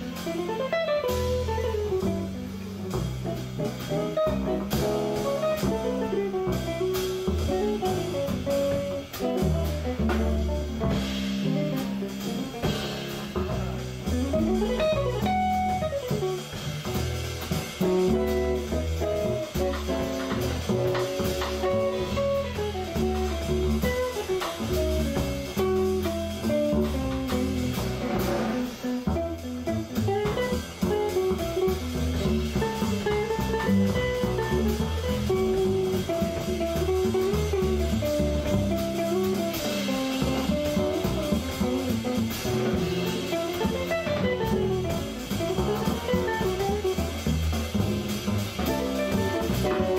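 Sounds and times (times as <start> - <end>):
drum kit: 0.0 - 49.9
walking upright bass: 0.0 - 49.9.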